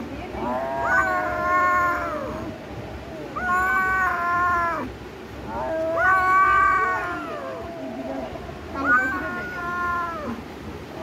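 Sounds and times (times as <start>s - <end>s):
kitten meowing: 3.4s - 4.9s, 5.9s - 7.6s.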